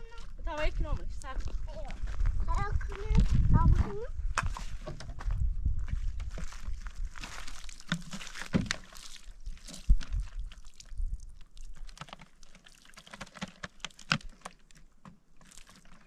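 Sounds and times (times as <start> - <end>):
water splashing on dry ground: 5.8 - 16.0
water pouring into plastic bottle: 5.9 - 16.0.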